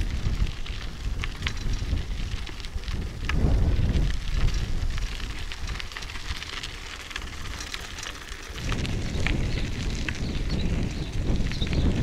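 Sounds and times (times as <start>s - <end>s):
wind on microphone: 0.0s - 5.9s, 8.6s - 12.0s
bicycle tyres on dirt road: 0.0s - 12.0s.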